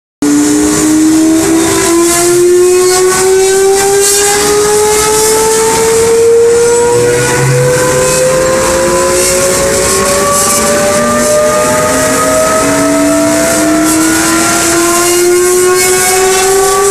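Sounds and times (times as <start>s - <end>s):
electric motor whine rising: 0.2s - 16.9s.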